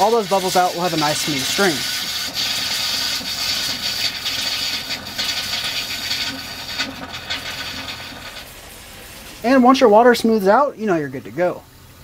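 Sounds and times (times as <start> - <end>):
faucet spitting and sputtering: 0.0 - 9.5
steady water hiss: 0.0 - 12.0.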